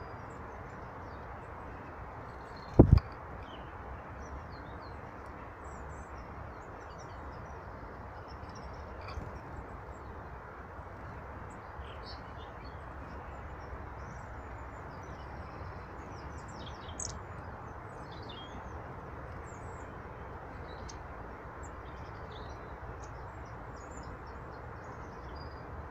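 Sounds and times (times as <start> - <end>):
songbirds chirping: 0.0 - 25.9.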